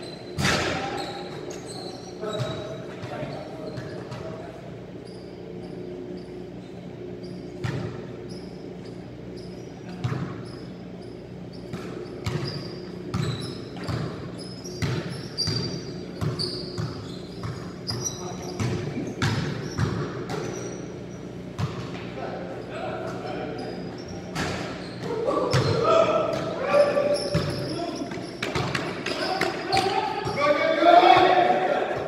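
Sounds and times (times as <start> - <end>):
shoe squeaks: 0.0 - 21.6, 22.5 - 30.6
basketballs bouncing on court: 7.5 - 8.1, 9.8 - 10.4, 11.6 - 22.0, 24.2 - 30.5.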